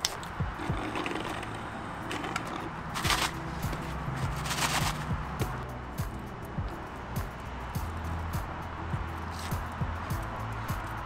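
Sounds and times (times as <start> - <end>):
slurping through a straw: 0.6 - 3.3.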